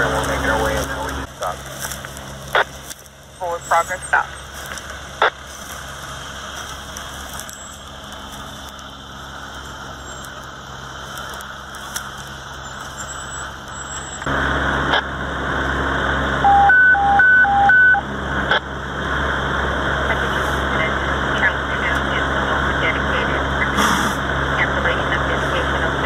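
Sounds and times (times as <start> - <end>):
engine idling: 0.0 - 26.0
high-low electronic beep: 16.4 - 18.0.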